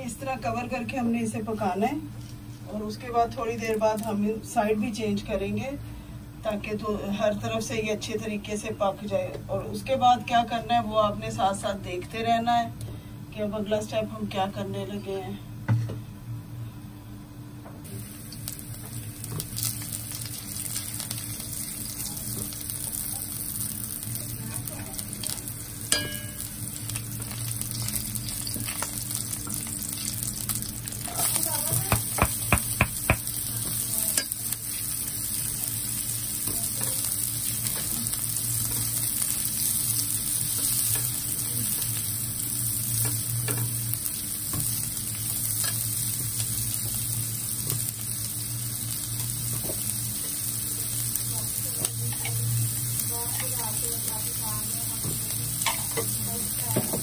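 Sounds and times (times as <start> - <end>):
food sizzling in hot oil: 17.8 - 57.0
spatula knocking on pan: 31.8 - 33.3.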